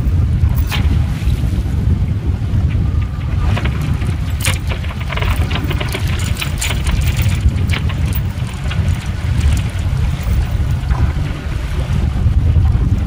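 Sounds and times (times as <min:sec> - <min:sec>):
choppy sea washing along hull: 0:00.0 - 0:13.0
wind buffeting microphone: 0:00.0 - 0:13.0
rigging clicks and rattles: 0:00.5 - 0:00.8, 0:02.7 - 0:12.0.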